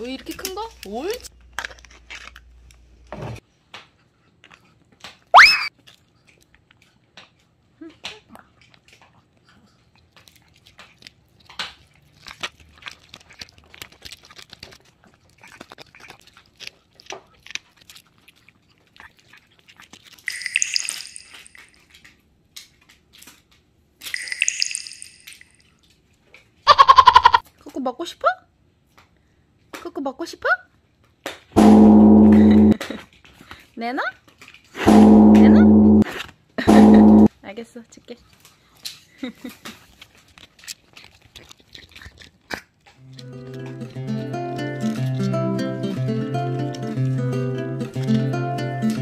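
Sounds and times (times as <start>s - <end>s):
dog gnawing and crunching: 0.0s - 20.4s, 21.3s - 24.1s, 25.6s - 26.6s, 30.7s - 31.6s, 32.7s - 34.9s, 37.9s - 49.0s
sharp loud click: 31.6s - 32.8s, 34.8s - 36.1s.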